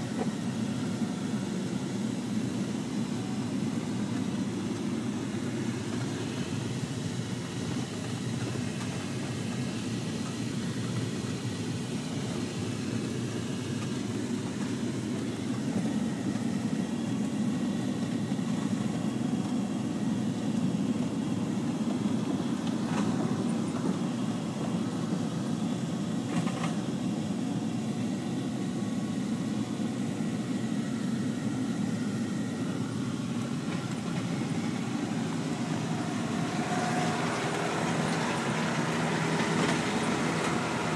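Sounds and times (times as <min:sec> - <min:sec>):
vehicle rumbling over rough field: 0:33.3 - 0:40.9.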